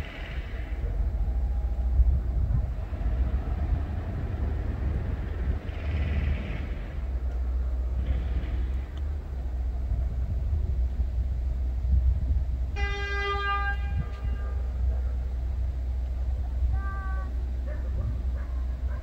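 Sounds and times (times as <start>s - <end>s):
low rumble: 0.0s - 12.8s
distant train horn: 12.7s - 14.9s, 16.7s - 17.5s.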